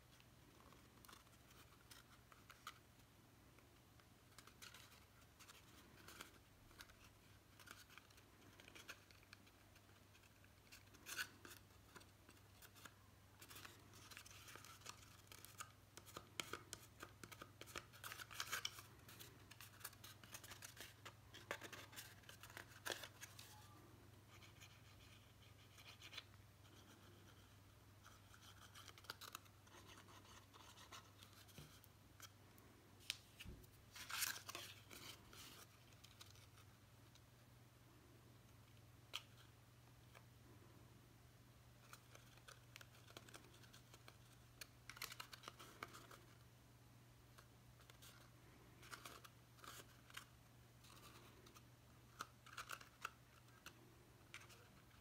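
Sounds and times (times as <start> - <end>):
cardstock rustling and scraping: 4.2 - 32.3.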